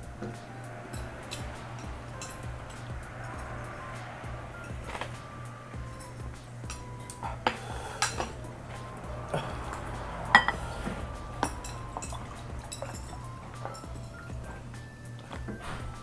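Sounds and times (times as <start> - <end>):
forks clinking on plates and bowls: 0.2 - 16.0.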